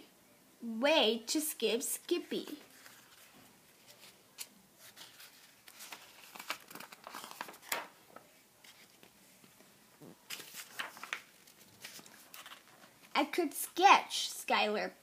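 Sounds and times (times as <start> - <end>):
paper pages crinkling and rustling: 2.4 - 13.2.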